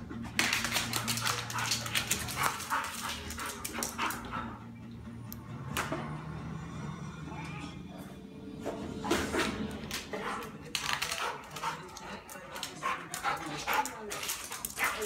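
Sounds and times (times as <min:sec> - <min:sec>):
dog claws clicking on tile: 0:00.4 - 0:04.3, 0:10.4 - 0:15.0.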